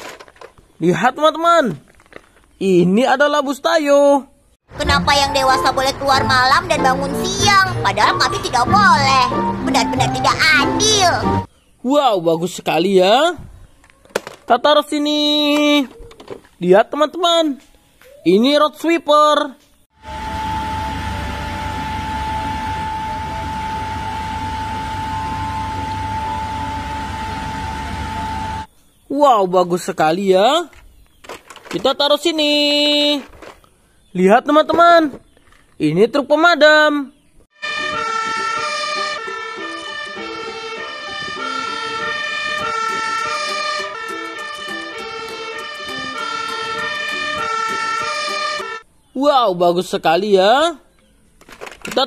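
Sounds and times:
road sweeper engine running: 4.7s - 11.5s, 20.0s - 28.7s
fire engine siren: 19.9s - 28.7s, 37.6s - 48.8s
rotating broom sweeping road: 20.0s - 28.7s
steady high whine: 20.0s - 28.7s.

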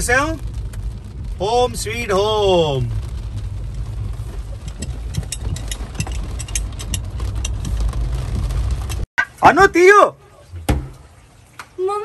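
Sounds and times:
car cabin low rumble: 0.0s - 9.0s
raindrops ticking on windshield: 0.0s - 10.0s.

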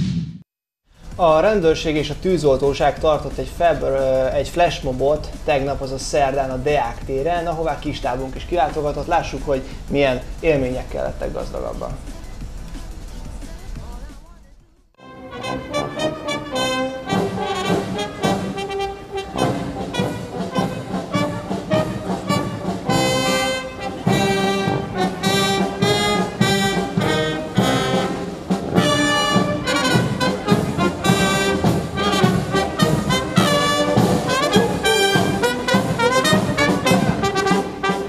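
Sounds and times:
marching brass band playing: 15.0s - 38.0s.

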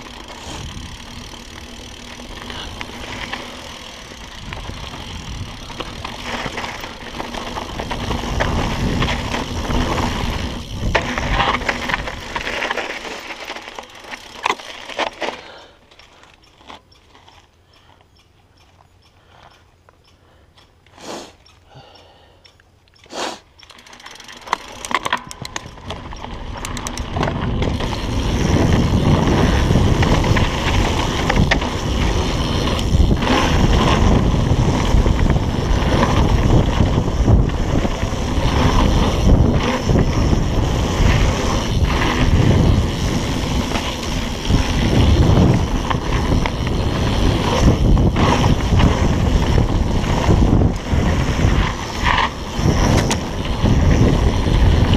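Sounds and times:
wind buffeting microphone: 0.0s - 12.4s, 25.5s - 54.9s
bike tyres rumbling over dirt: 0.0s - 17.5s, 23.7s - 54.9s.

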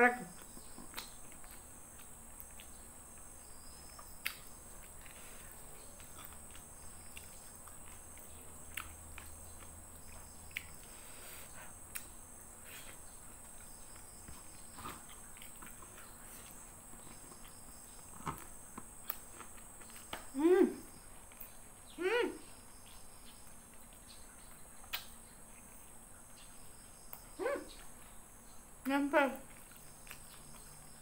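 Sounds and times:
faint steady hiss: 0.0s - 31.0s
chewing mouth clicks and smacks: 0.3s - 10.9s, 11.9s - 12.2s, 13.4s - 20.3s, 23.4s - 25.8s, 29.4s - 31.0s.

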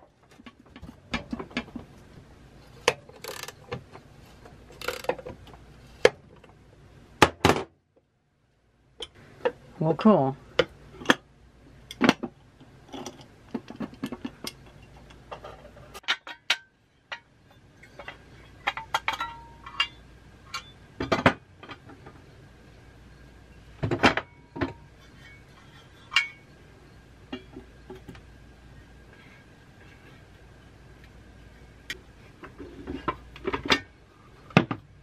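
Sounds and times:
metallic clinks and knocks: 12.9s - 21.9s.

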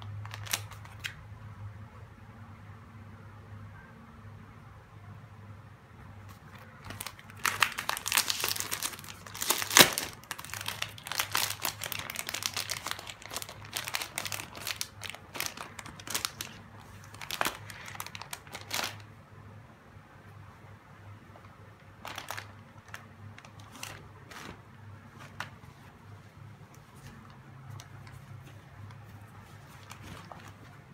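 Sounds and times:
plastic bag crinkling: 0.0s - 1.1s, 6.4s - 19.1s, 22.0s - 25.6s, 26.9s - 30.9s.

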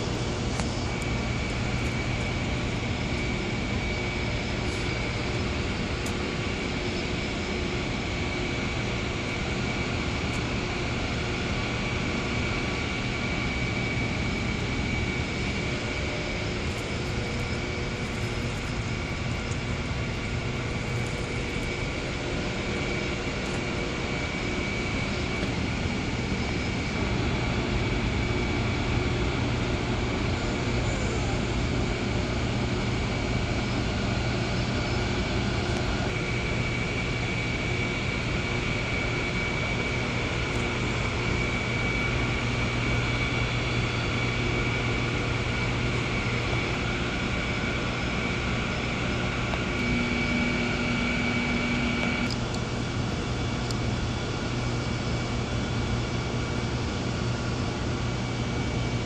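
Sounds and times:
faint high whine: 0.0s - 59.0s
mechanical drone: 0.0s - 59.0s.

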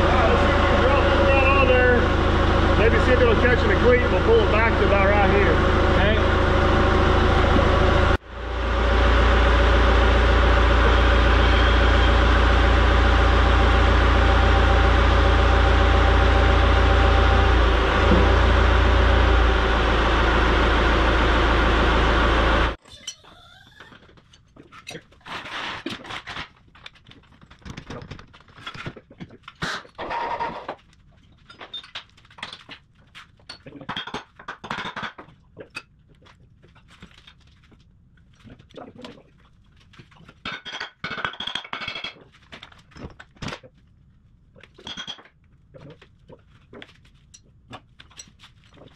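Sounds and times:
excavator diesel engine running: 0.0s - 22.8s.

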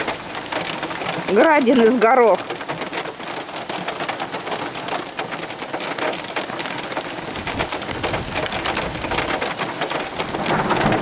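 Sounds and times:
hail and rain pattering: 0.0s - 11.0s
thunder rumbling: 7.3s - 11.0s.

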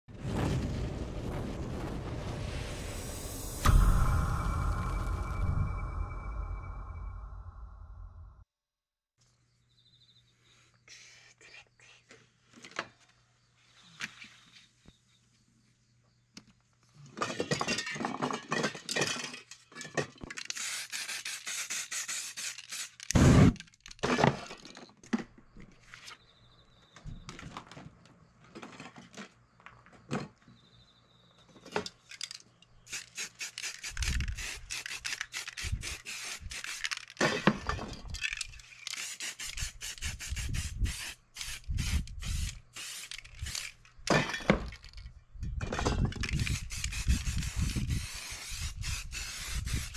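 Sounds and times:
spray paint can hissing: 20.5s - 23.5s, 32.9s - 37.2s, 38.6s - 43.7s, 46.3s - 49.9s.

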